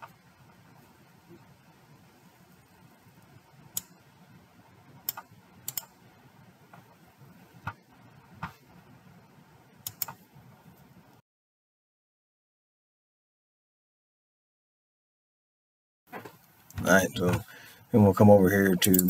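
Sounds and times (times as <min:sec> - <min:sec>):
faint room hiss: 0:00.0 - 0:11.2, 0:16.1 - 0:19.0
computer mouse clicking: 0:03.7 - 0:04.0, 0:05.0 - 0:06.0, 0:09.8 - 0:10.2.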